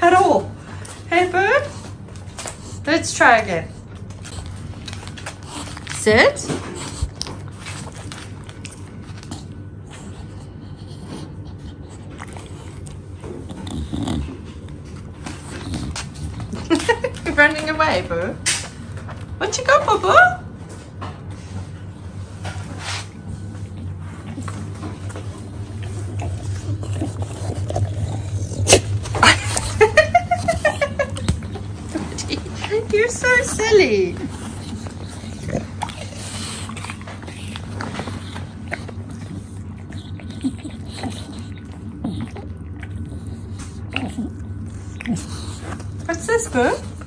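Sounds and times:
dog biting an apple: 0:22.7 - 0:47.0.

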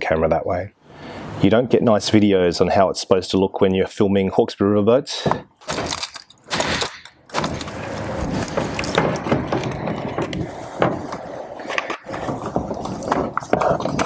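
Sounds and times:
cable scraping and rattling: 0:05.7 - 0:14.0.

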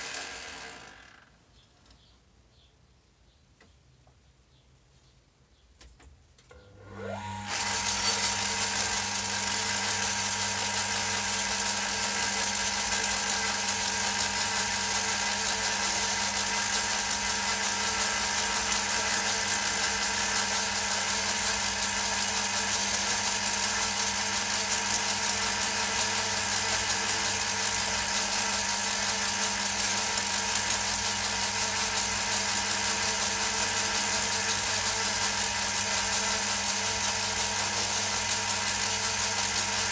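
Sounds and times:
lathe motor running: 0:00.0 - 0:01.2, 0:06.6 - 0:39.9.

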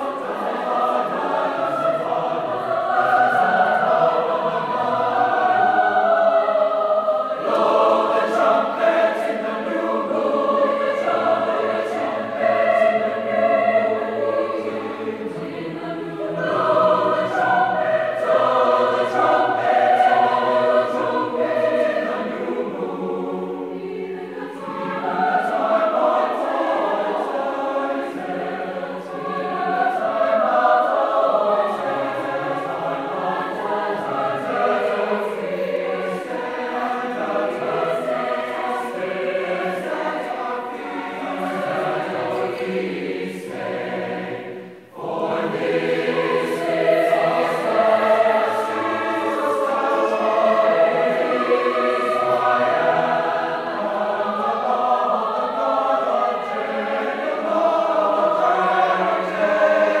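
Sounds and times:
choir singing in harmony: 0:00.0 - 1:00.0.

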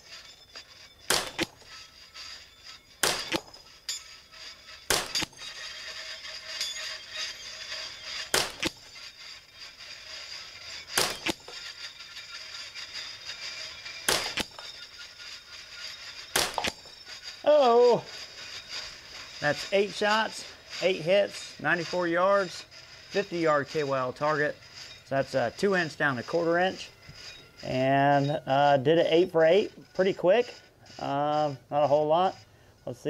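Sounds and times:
bullets hitting steel targets: 0:01.0 - 0:01.6, 0:03.0 - 0:04.0, 0:04.9 - 0:05.4, 0:08.1 - 0:08.8, 0:10.8 - 0:11.6, 0:14.0 - 0:14.7, 0:16.3 - 0:16.9
rifle shots: 0:01.1 - 0:01.5, 0:03.0 - 0:03.4, 0:04.9 - 0:05.2, 0:08.3 - 0:08.7, 0:10.9 - 0:11.3, 0:14.1 - 0:14.5, 0:16.4 - 0:16.7.

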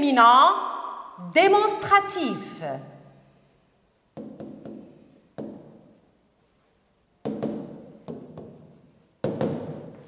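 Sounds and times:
taps and strokes on glass: 0:04.1 - 0:06.1.

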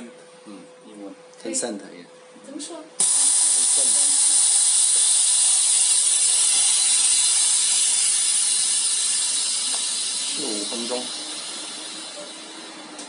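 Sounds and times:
laminating machine air hiss: 0:03.0 - 0:13.0.

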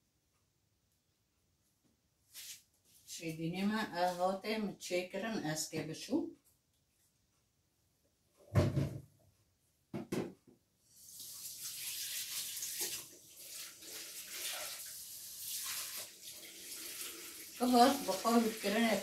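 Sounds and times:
knocks: 0:08.5 - 0:09.1, 0:09.9 - 0:10.6
tap water running into bowl: 0:11.1 - 0:19.0.

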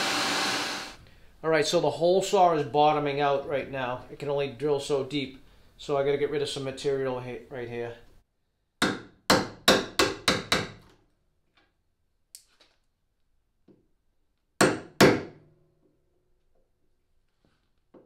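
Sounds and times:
hammer striking chisel: 0:08.8 - 0:10.8, 0:14.6 - 0:15.4.

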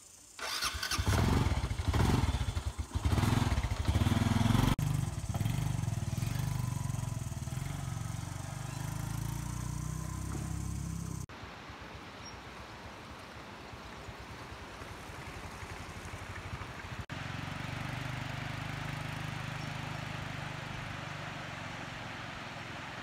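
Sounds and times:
motorbike engine pulsing: 0:00.4 - 0:11.3
water flowing: 0:11.3 - 0:23.0.

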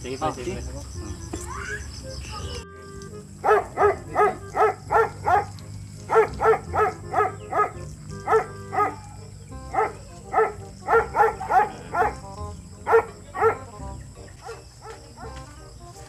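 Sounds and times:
dog barking: 0:03.4 - 0:13.7, 0:14.4 - 0:15.4.

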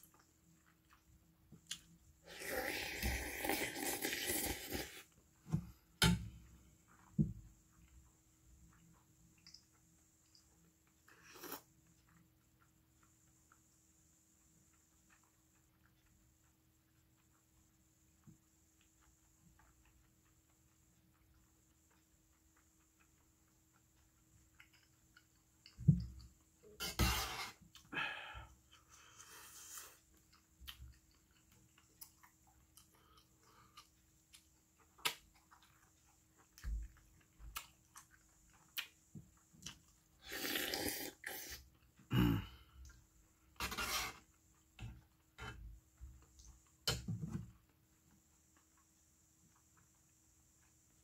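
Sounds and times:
chewing and mouth noises: 0:14.4 - 0:26.7, 0:28.7 - 0:43.6.

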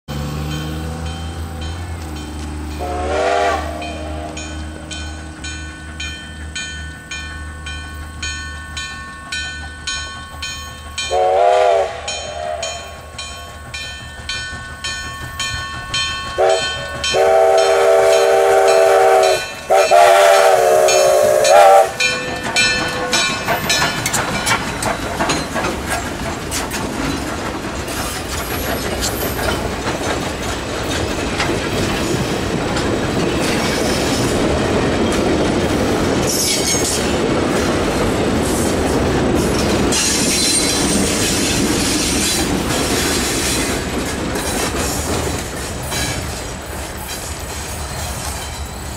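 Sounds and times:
steam locomotive exhaust chuffs: 0:00.1 - 0:48.9
multi-note steam whistle: 0:02.8 - 0:04.5, 0:11.1 - 0:13.3, 0:16.4 - 0:22.2
wheels clattering over rail joints: 0:12.1 - 0:17.2, 0:21.7 - 0:48.9.

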